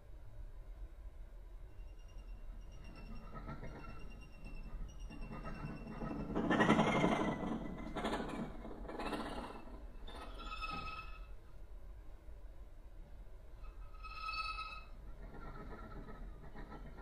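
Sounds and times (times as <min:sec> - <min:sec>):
thin high violin tone: 0:10.2 - 0:11.4, 0:13.6 - 0:14.9.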